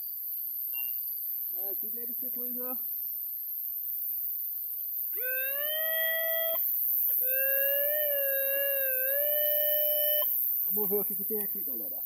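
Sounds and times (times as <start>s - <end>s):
metal detector tone: 7.2s - 10.4s.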